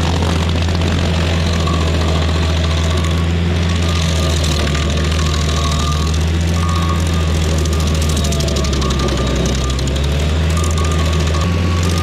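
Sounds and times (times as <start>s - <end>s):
stump grinder grinding wood: 0.0s - 12.0s.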